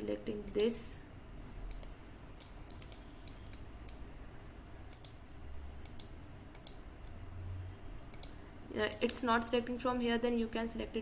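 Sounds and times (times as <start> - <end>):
computer mouse clicking: 0.4 - 0.8, 1.7 - 4.0, 4.9 - 5.2, 5.8 - 6.8, 8.1 - 9.2.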